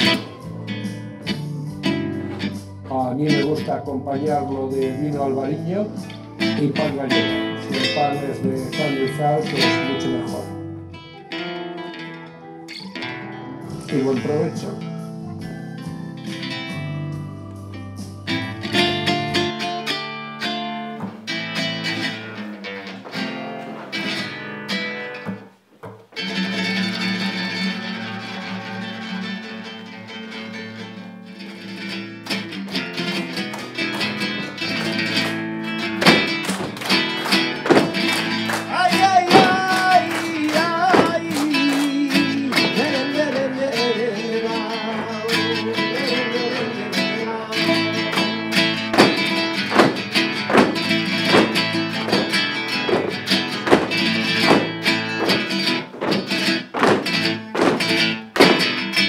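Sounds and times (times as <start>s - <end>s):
rhythmic handclaps: 0.0s - 3.0s, 25.1s - 31.0s, 31.8s - 47.0s, 47.6s - 59.0s
spanish guitar playing: 0.0s - 59.0s
man singing: 1.3s - 11.4s, 13.6s - 15.4s, 37.8s - 52.4s.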